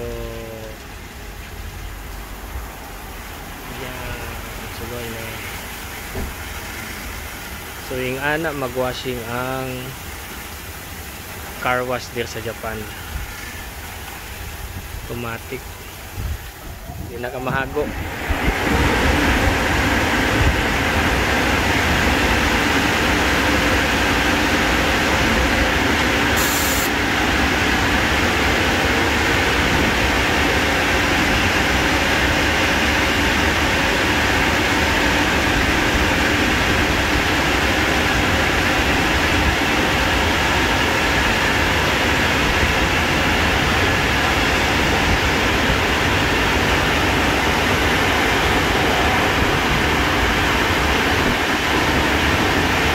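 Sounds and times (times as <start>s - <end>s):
high hiss: 1.9s - 27.2s
air blower rushing: 24.4s - 27.0s.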